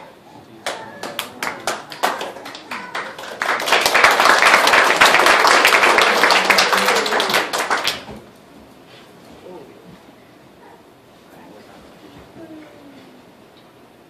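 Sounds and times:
audience applauding: 0:00.6 - 0:08.3.

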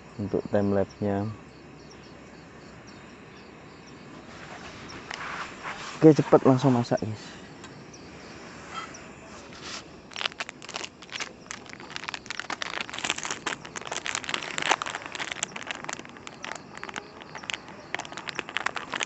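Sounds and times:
plastic sachet crinkling and tearing: 0:10.1 - 0:19.0.

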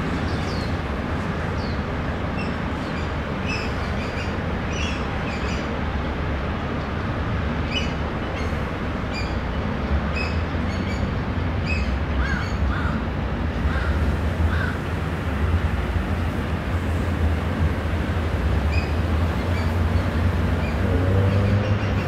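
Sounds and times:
birds calling: 0:11.7 - 0:15.0, 0:16.1 - 0:22.0.

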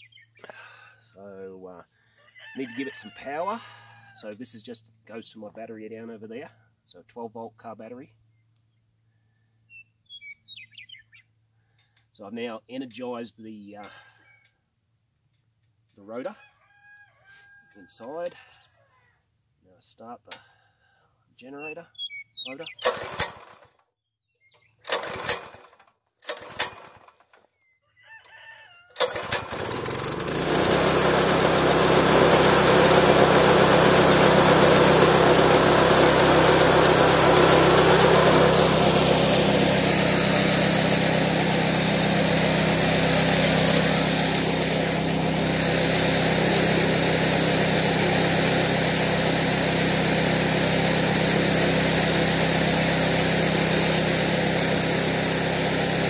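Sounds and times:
recoil starter pulls: 0:22.8 - 0:23.8, 0:24.8 - 0:27.4, 0:29.0 - 0:56.0
small engine running: 0:22.8 - 0:23.8, 0:24.8 - 0:27.5, 0:29.0 - 0:56.0.

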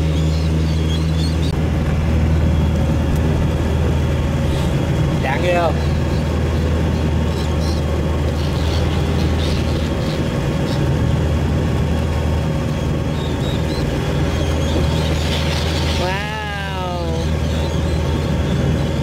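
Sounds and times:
boat motor running: 0:00.0 - 0:19.0.

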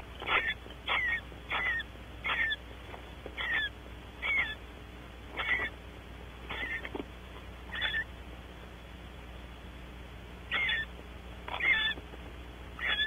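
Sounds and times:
barn owl calls: 0:00.0 - 0:02.7, 0:03.3 - 0:04.7, 0:05.3 - 0:05.8, 0:06.4 - 0:08.2, 0:10.4 - 0:12.1, 0:12.7 - 0:13.0.

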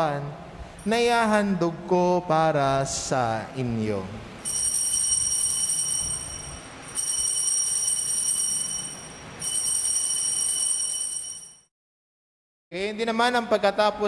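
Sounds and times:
altar bells pealing: 0:04.4 - 0:11.7.

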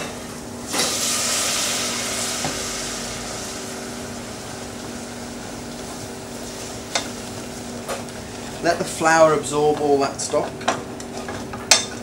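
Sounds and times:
steady low hum: 0:00.0 - 0:11.9
liquid sizzling in hot pan: 0:00.6 - 0:08.6.

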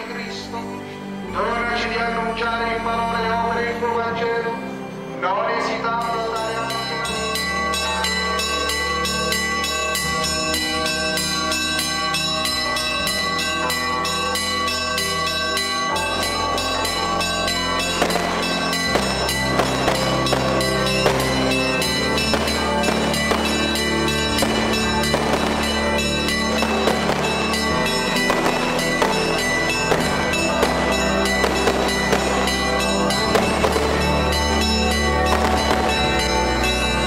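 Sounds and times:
church bells ringing: 0:00.0 - 0:37.0
sharp cracks: 0:17.8 - 0:34.1.

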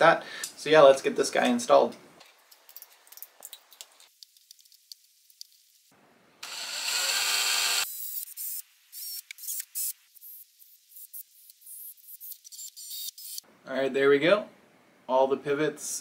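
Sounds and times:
cordless drill drilling plastic: 0:06.4 - 0:08.2.

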